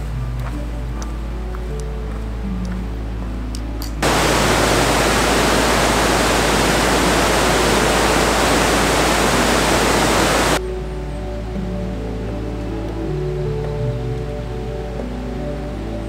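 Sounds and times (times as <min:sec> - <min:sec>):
river rushing over boulders: 0:04.0 - 0:10.6.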